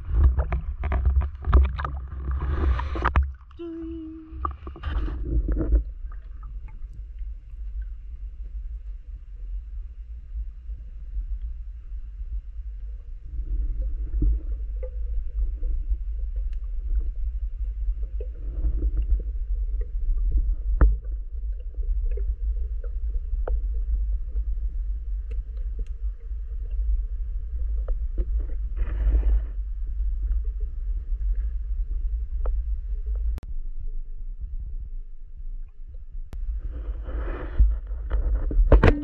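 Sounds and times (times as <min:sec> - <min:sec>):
underwater water rumble: 0:00.0 - 0:39.0.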